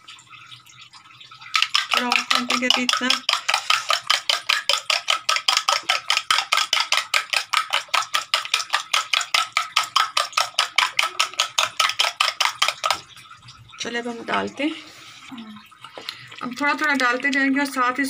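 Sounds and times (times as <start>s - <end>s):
metal spoon beating egg in bowl: 1.4s - 14.5s.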